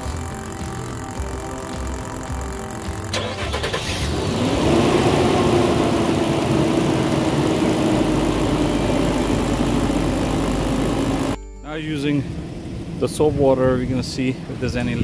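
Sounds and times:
air compressor inflating tire: 0.0 - 3.2
car engine starting and idling: 0.0 - 14.6.

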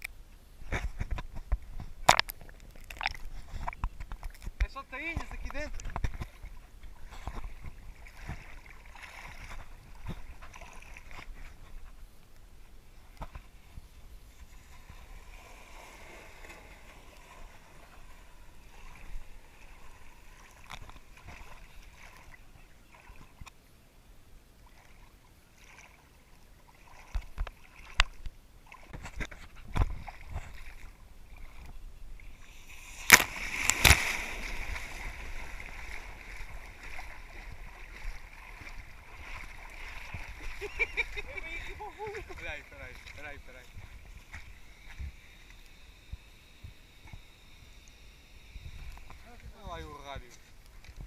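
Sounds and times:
stream water lapping: 0.0 - 51.0
bikes splashing through water: 28.7 - 45.1.

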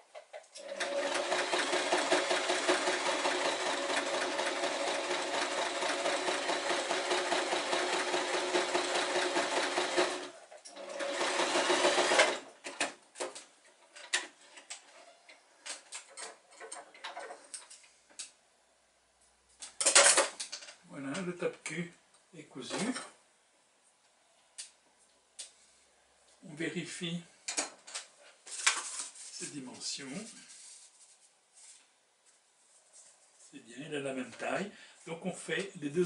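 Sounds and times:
sewing machine stitching: 0.6 - 12.9.

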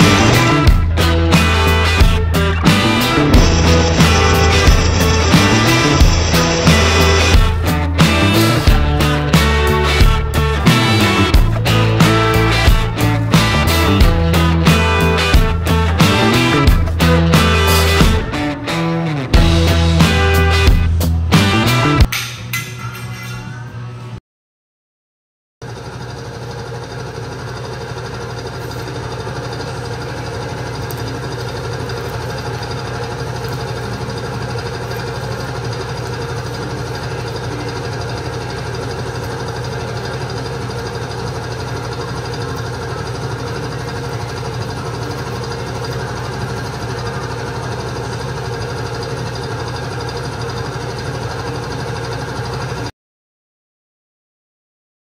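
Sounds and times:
machine humming: 0.0 - 19.7.

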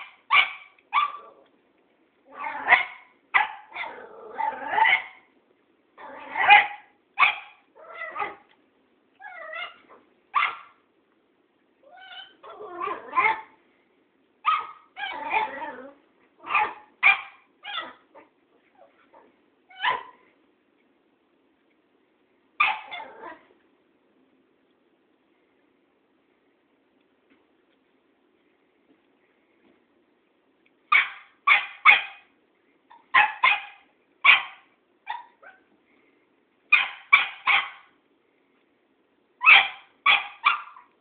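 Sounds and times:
puppy barking and yipping: 0.0 - 1.4, 2.3 - 5.3, 6.1 - 8.5, 9.2 - 10.8, 11.9 - 13.6, 14.4 - 15.7, 16.4 - 20.2, 22.6 - 23.4, 30.9 - 32.3, 32.9 - 35.7, 36.7 - 37.9, 39.4 - 41.0.

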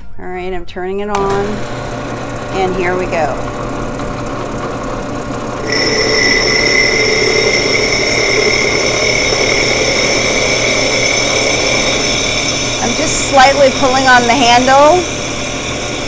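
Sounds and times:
drill press running: 3.4 - 16.0
high-pitched grinding whine: 5.5 - 16.0.

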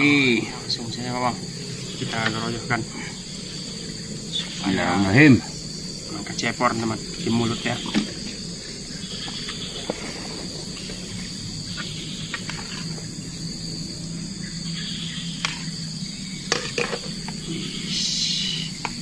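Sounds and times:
insects chorus: 0.0 - 19.0.

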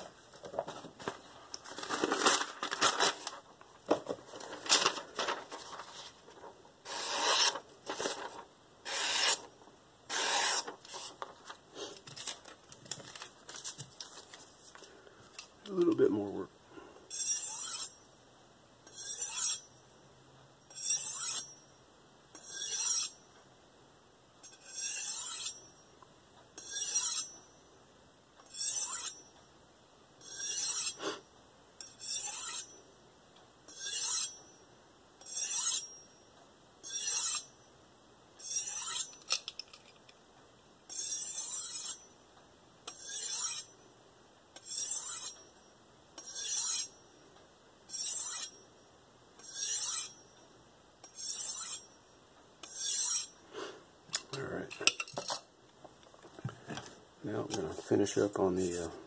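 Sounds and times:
knife blade rasping on honing rod: 6.9 - 7.6, 8.9 - 9.4, 10.1 - 10.7, 17.1 - 18.0, 18.9 - 19.7, 20.7 - 21.5, 22.4 - 23.2, 24.4 - 25.6, 26.6 - 27.4, 28.5 - 29.2, 30.2 - 31.0, 31.8 - 32.8, 33.7 - 34.4, 35.2 - 36.0, 36.8 - 37.5, 38.4 - 39.2, 40.9 - 42.0, 42.9 - 43.7, 44.6 - 45.4, 46.2 - 47.0, 47.9 - 48.5, 49.4 - 50.2, 51.0 - 51.9, 52.6 - 53.4.

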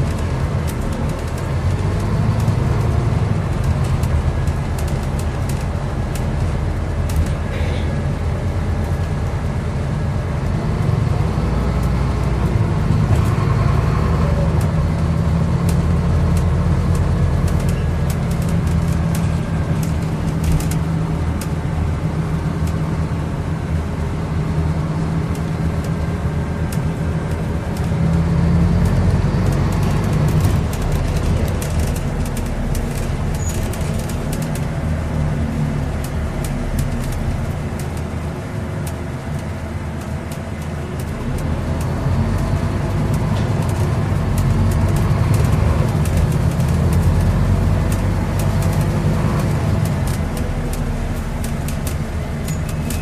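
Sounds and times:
bus diesel engine running: 0.0 - 53.0
clicks and rattles: 15.6 - 21.5, 28.9 - 34.8.

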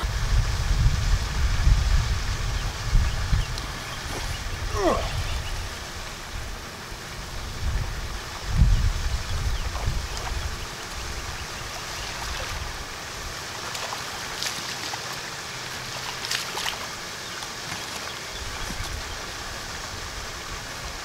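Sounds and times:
wind rumble on microphone: 0.0 - 13.4.

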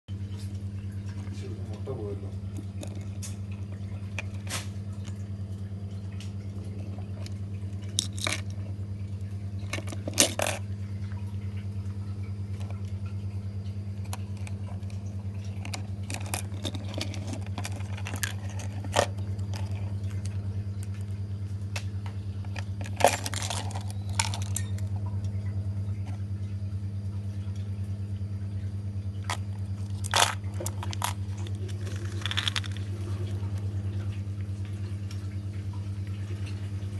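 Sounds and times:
steady low hum: 0.1 - 36.9
plastic lures and hooks clinking: 7.2 - 8.7, 9.6 - 10.6, 14.0 - 21.0, 22.5 - 25.0, 29.3 - 32.9.

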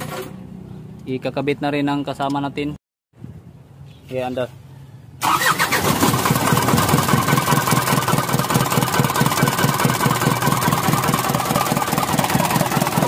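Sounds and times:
diesel engine misfiring: 5.2 - 13.0.

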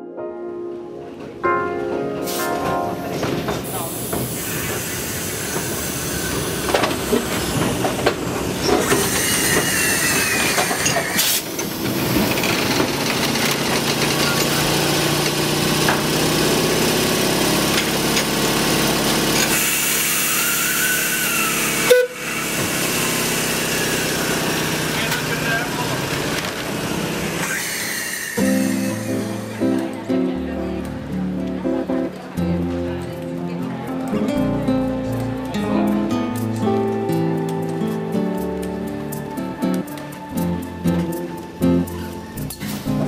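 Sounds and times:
model train rumbling: 3.4 - 30.0.

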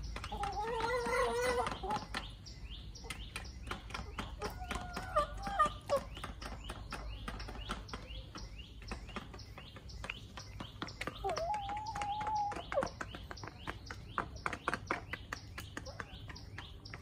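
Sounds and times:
chickens chirping and clicking: 0.0 - 17.0.

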